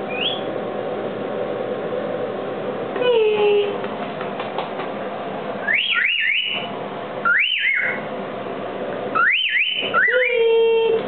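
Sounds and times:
cockatiel chirping: 0.1 - 0.5, 5.7 - 6.7.

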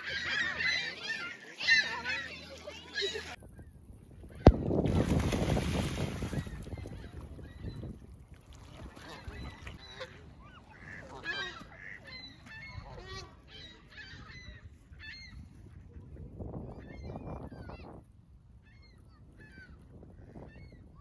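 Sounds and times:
geese honking: 10.0 - 13.4.

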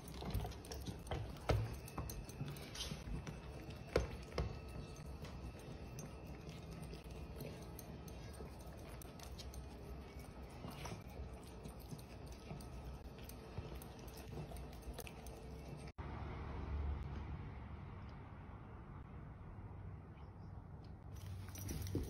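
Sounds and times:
dogs licking: 0.0 - 15.9.

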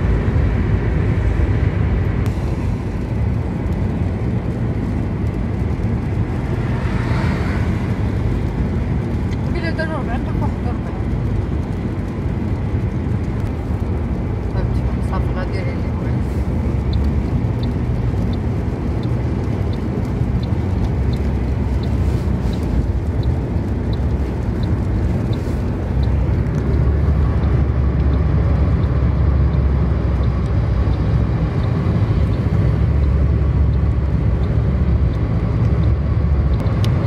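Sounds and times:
car cabin road and engine noise: 0.0 - 37.0
faint light ticking: 8.6 - 37.0.

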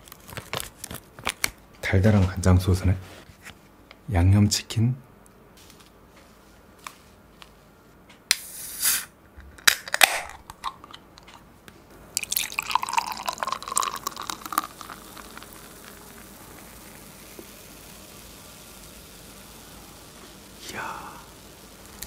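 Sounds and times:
hiss burst: 8.3 - 9.1, 16.2 - 22.0
beer pouring into glass: 12.2 - 17.7
foam fizzing: 12.2 - 22.0.

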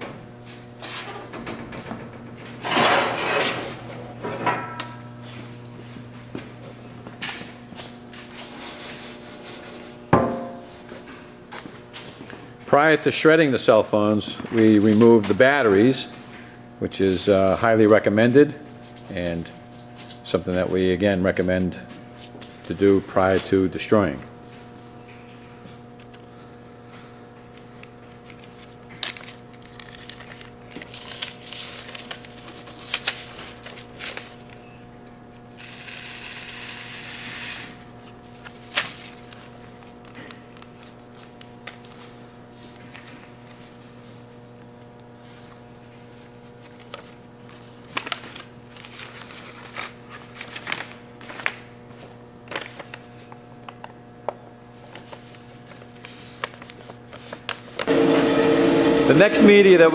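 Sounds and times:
steady low hum: 0.0 - 59.9
plastic bag and paper rustling: 28.1 - 34.6, 45.3 - 54.0, 54.8 - 57.9.

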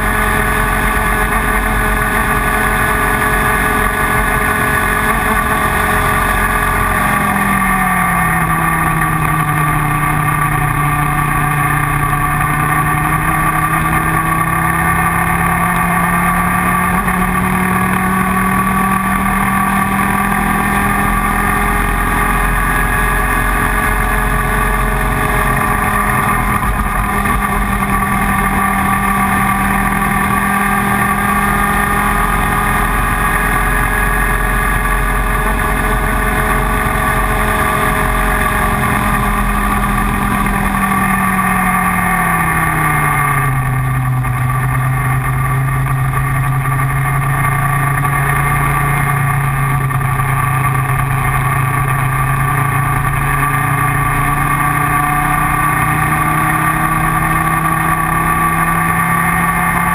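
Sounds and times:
kart engine at high revs: 0.0 - 59.9.

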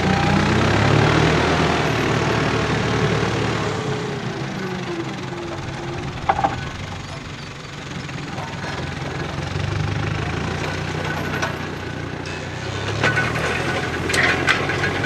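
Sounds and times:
tractor diesel engine running: 0.0 - 15.0
sharp metal clanks: 5.4 - 9.3.

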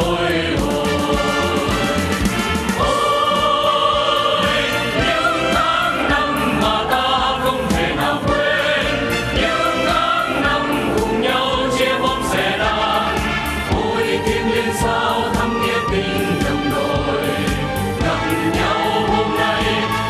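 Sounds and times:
amplified band with drums: 0.0 - 20.0
vocal group singing in chorus: 0.0 - 20.0.

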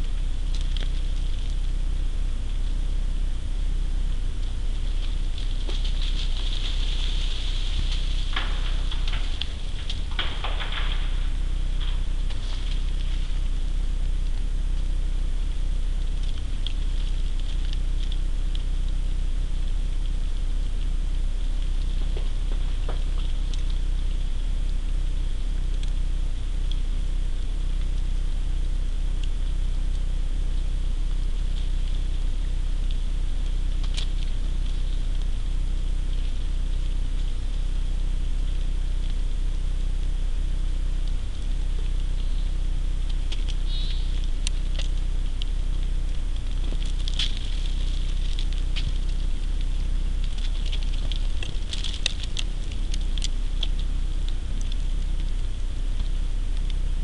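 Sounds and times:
low electrical hum and hiss: 0.0 - 57.0
ticks and pattering from branches: 0.0 - 57.0.

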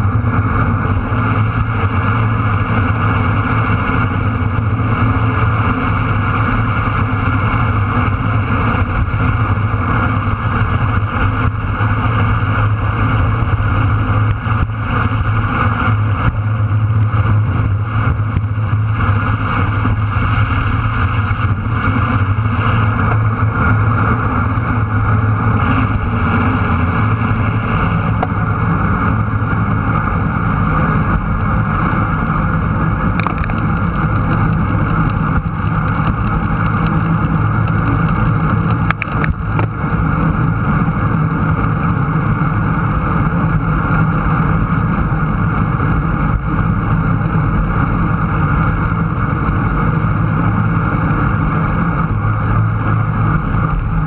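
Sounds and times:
heavy low rumble: 0.0 - 54.0
road noise: 0.0 - 54.0
wind rushing: 24.9 - 28.7.

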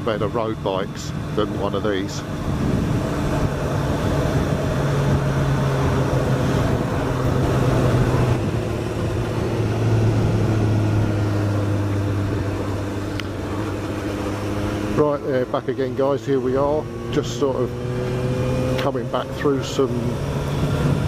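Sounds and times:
motorcycle engine running: 0.0 - 21.0
wind noise: 1.1 - 13.0, 20.2 - 21.0.

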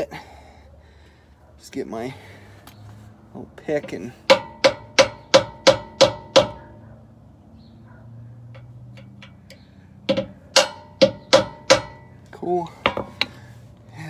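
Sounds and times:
mallet tapping metal pick: 4.3 - 6.5, 8.6 - 12.1.

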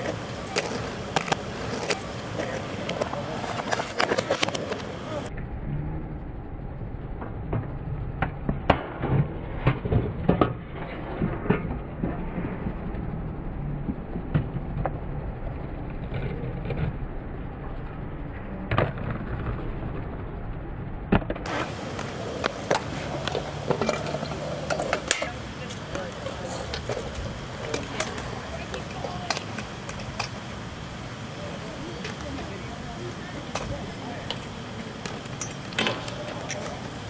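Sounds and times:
scooter wheels rolling on concrete: 0.0 - 5.4, 21.2 - 37.0
scooters landing with clacks: 21.1 - 30.4.

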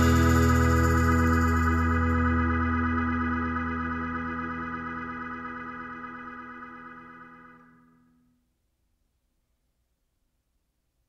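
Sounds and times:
sustained music chord: 0.0 - 7.6.

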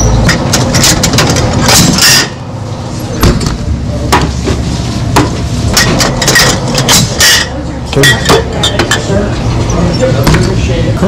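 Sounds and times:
knocks and clatter: 0.2 - 2.3.

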